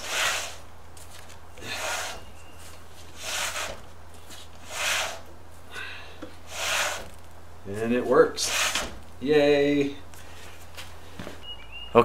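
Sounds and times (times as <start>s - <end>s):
spinning wheel brake rubbing: 1.6s - 5.4s, 6.3s - 9.1s.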